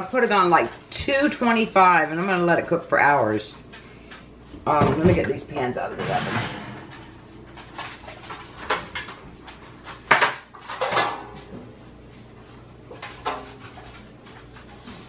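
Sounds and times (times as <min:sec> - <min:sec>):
metal baking pans clattering: 0:04.7 - 0:11.5, 0:12.9 - 0:14.5.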